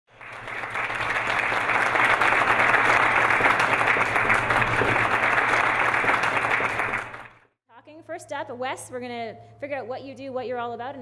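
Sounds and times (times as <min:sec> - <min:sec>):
audience applauding: 0:00.1 - 0:07.4.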